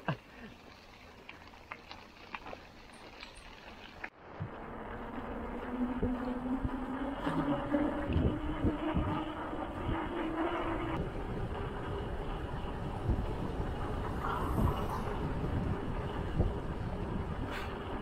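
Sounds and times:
bicycle rattling on gravel: 0:00.0 - 0:05.7, 0:09.6 - 0:18.0
tyres humming on pavement: 0:00.0 - 0:18.0
wind noise on microphone: 0:04.2 - 0:18.0.

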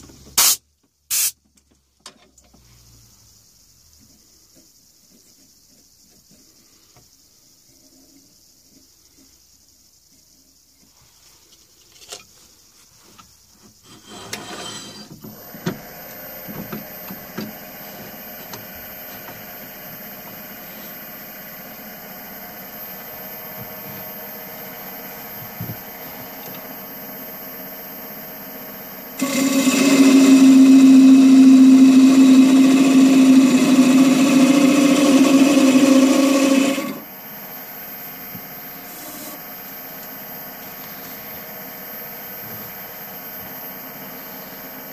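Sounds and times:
turning tool cutting wood: 0:13.9 - 0:24.2, 0:29.1 - 0:37.1
wood lathe running with high whine: 0:14.0 - 0:44.9.

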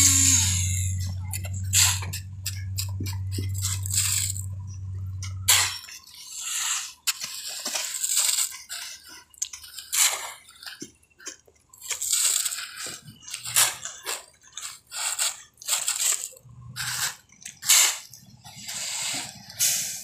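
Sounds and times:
shovels scraping ground: 0:00.0 - 0:04.5, 0:05.2 - 0:20.0
low hum: 0:00.0 - 0:06.0.

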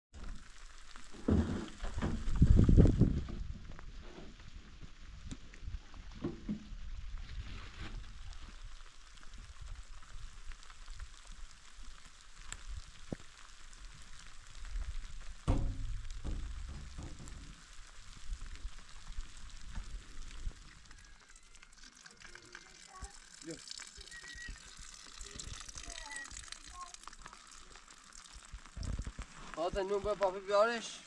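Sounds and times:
heavy rain falling: 0:08.4 - 0:21.4, 0:22.3 - 0:27.8
low thumps: 0:15.4 - 0:17.7.

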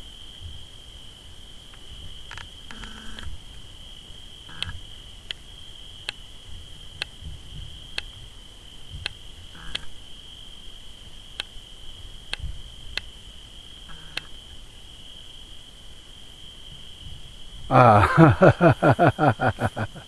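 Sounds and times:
crickets chirring: 0:00.0 - 0:20.0.

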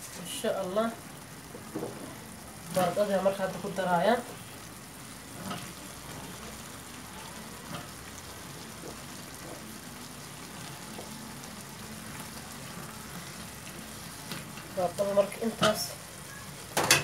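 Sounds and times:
curry sizzling in a pan: 0:00.0 - 0:17.0
spatula stirring a pan: 0:05.2 - 0:17.0.

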